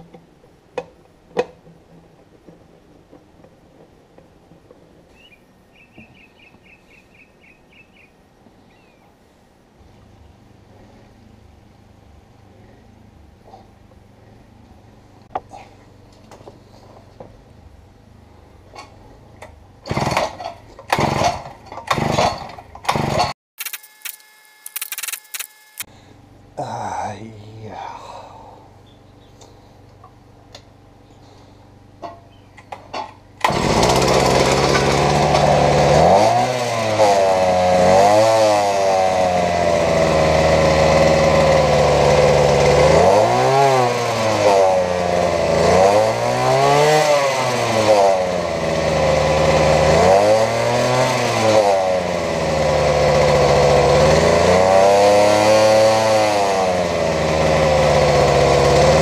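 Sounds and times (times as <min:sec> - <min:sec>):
two-stroke tiller engine revving: 0:18.8 - 0:23.4, 0:33.4 - 0:59.0.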